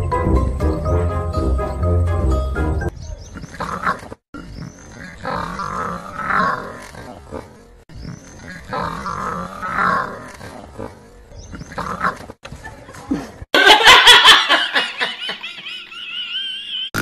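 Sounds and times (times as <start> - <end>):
women laughing: 12.7 - 17.0.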